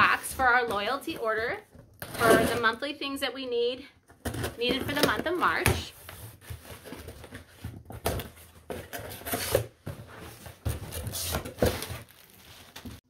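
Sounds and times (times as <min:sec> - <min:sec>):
knocks and scrapes: 0:00.0 - 0:02.8
packing paper rustling: 0:06.0 - 0:13.0.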